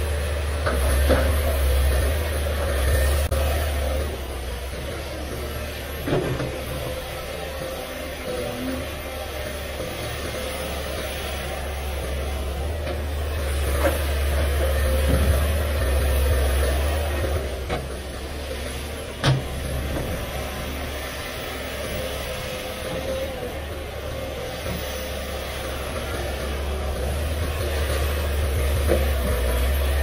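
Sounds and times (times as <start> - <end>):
excavator diesel engine humming: 0.0 - 30.0.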